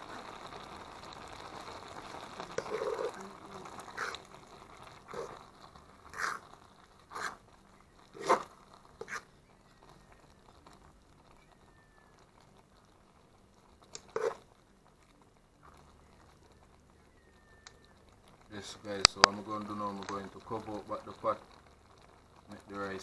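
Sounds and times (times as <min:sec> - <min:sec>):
fork scraping metal pot: 0:08.1 - 0:09.3, 0:14.0 - 0:14.4.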